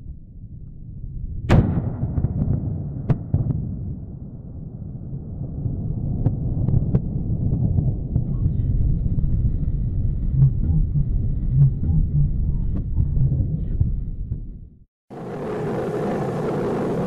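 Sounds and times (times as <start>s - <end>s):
rocket explosion rumble: 1.2s - 10.4s
sharp crackles and pops: 6.1s - 10.2s.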